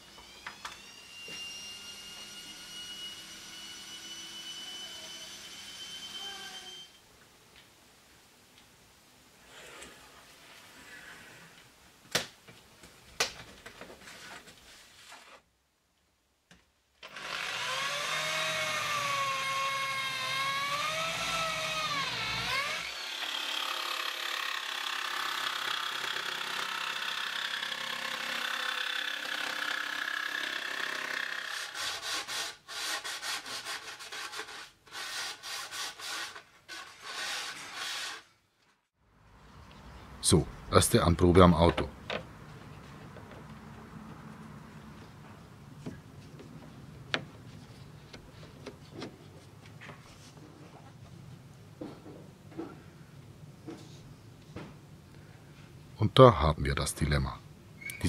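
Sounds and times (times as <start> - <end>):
jigsaw cutting wood: 17.0 - 38.3.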